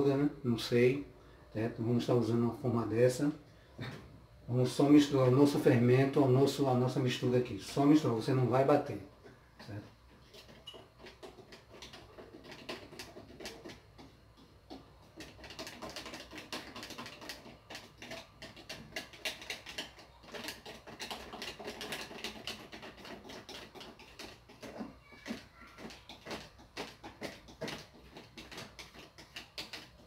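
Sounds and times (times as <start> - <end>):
utensil scraping a bowl: 9.6 - 30.0.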